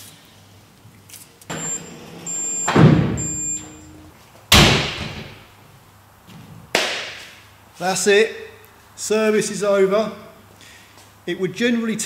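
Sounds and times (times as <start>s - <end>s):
loud slams: 2.6s - 3.8s, 4.5s - 5.4s.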